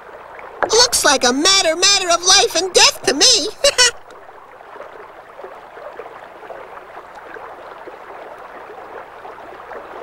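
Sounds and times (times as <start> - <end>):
underwater burble with crackle: 4.0 - 10.0.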